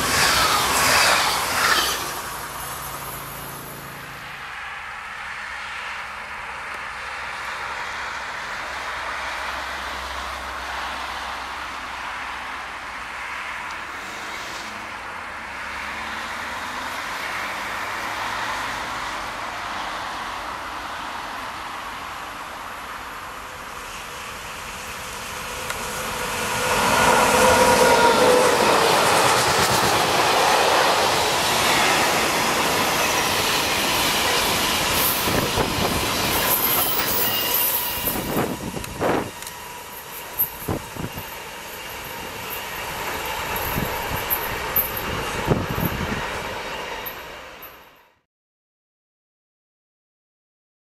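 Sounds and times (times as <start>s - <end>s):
clatter of train wheels: 0.0s - 3.5s, 23.9s - 48.0s
freight train rail rumble: 0.0s - 48.2s.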